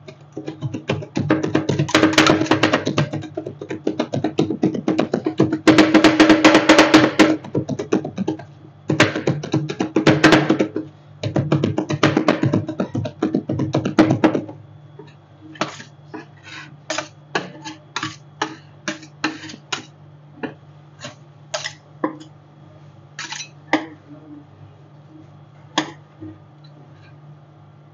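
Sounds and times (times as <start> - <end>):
steady low hum: 0.0 - 27.9
metal spatulas clattering on plate: 21.6 - 22.3, 23.2 - 23.6.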